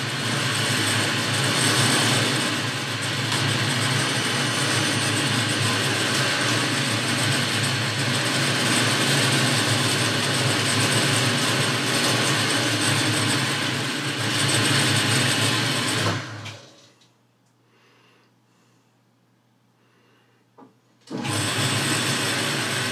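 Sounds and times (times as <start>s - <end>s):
lathe running: 0.0s - 16.8s, 21.1s - 22.9s.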